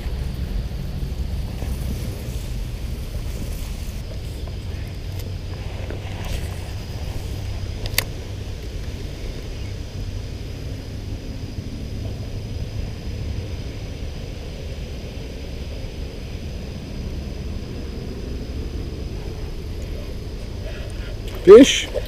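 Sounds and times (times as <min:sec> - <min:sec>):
light hiss: 0:00.0 - 0:22.0
low rumble: 0:00.0 - 0:22.0.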